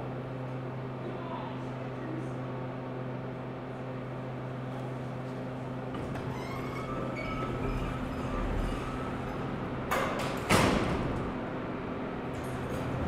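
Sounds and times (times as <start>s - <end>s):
elevator doors sliding shut: 5.8s - 13.0s
elevator doors thudding: 5.8s - 13.0s.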